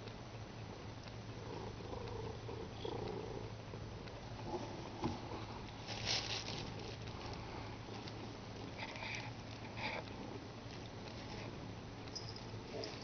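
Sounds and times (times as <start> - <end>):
steady low hum: 0.0 - 13.0
cat scuffling with toy: 5.8 - 7.3.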